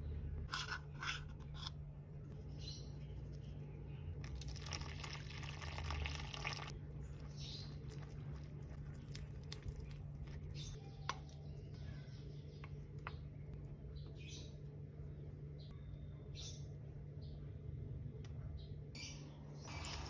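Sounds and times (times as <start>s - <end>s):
spoon stirring batter: 0.5s - 11.8s
water pouring into a bowl: 4.2s - 6.7s.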